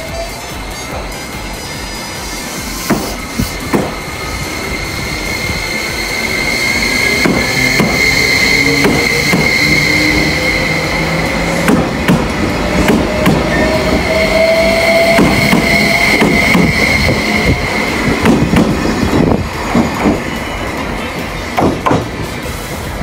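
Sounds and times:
electric train motors whining: 0:00.0 - 0:23.0
steady high whine: 0:00.0 - 0:23.0
train wheels clacking over rail joints: 0:02.6 - 0:04.2, 0:07.0 - 0:10.6, 0:11.2 - 0:14.1, 0:14.8 - 0:22.6.

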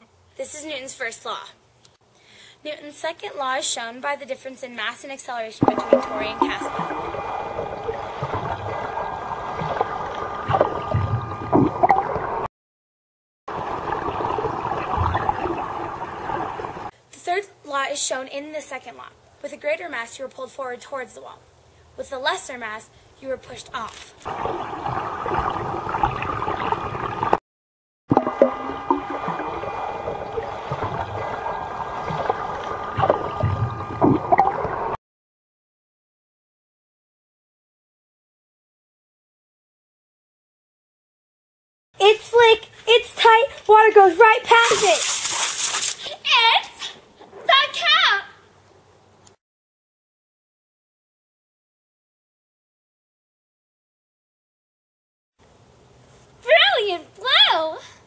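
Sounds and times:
swimmer's strokes: 0:05.6 - 0:12.5, 0:24.2 - 0:27.4, 0:28.1 - 0:35.0, 0:44.5 - 0:46.1
underwater churning and gurgling: 0:05.6 - 0:12.5, 0:13.5 - 0:16.9, 0:24.3 - 0:27.4, 0:28.1 - 0:35.0.

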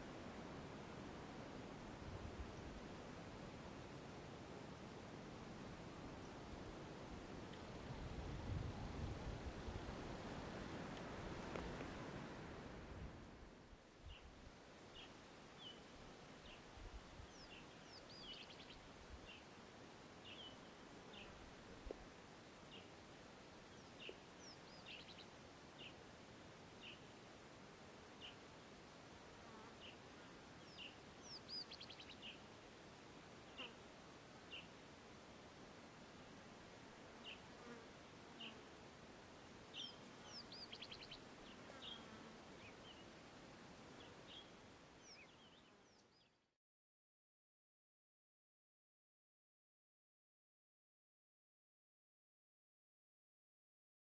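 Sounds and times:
faint background hiss: 0:00.0 - 0:46.6
small birds chirping: 0:17.3 - 0:19.5, 0:30.6 - 0:32.4, 0:39.7 - 0:43.1, 0:44.0 - 0:46.4
bird chirping: 0:39.8 - 0:43.0.

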